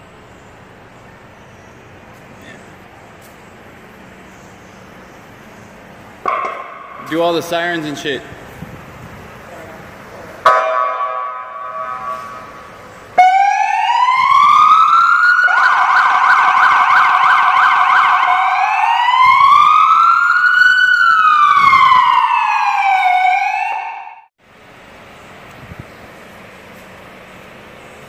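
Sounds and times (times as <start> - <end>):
police siren wailing and yelping: 10.4 - 24.3.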